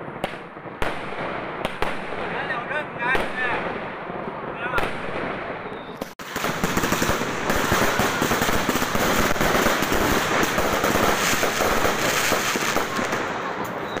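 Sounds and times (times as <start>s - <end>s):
fireworks popping and crackling: 0.0s - 14.0s.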